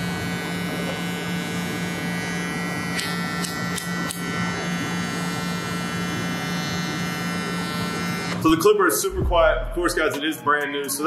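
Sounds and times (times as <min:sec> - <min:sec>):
hair clipper motor humming: 0:00.0 - 0:08.6.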